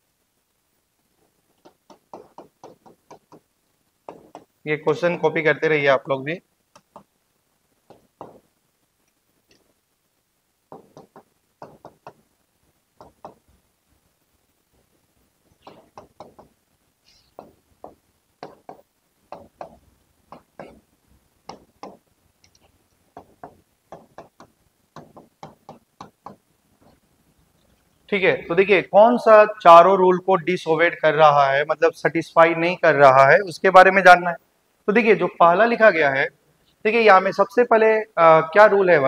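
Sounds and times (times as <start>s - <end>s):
writing taps on a board: 1.6s - 3.4s, 4.1s - 4.5s, 7.9s - 8.4s, 10.7s - 12.2s, 13.0s - 13.4s, 15.6s - 16.6s, 17.3s - 20.8s, 21.5s - 22.0s, 23.2s - 26.4s.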